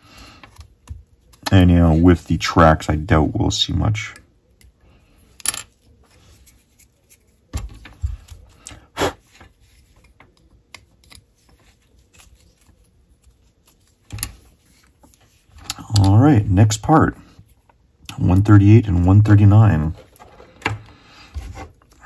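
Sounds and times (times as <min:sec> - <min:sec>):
clicks and knocks of plastic parts: 0:19.9 - 0:22.0.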